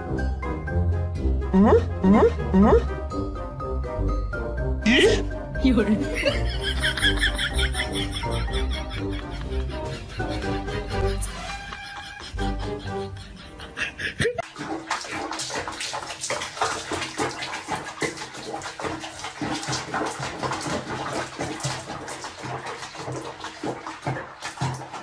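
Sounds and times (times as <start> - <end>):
water splashing in basin: 5.0 - 9.6, 14.4 - 25.0.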